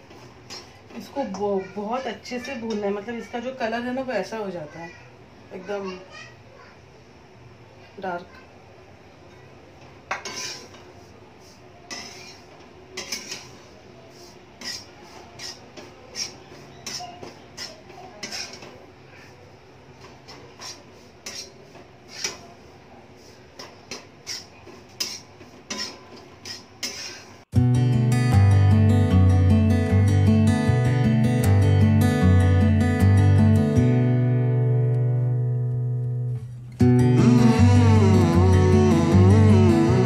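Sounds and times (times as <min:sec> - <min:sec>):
metal spatula scraping frying pan: 0:10.1 - 0:18.7, 0:20.2 - 0:22.5, 0:23.2 - 0:27.4.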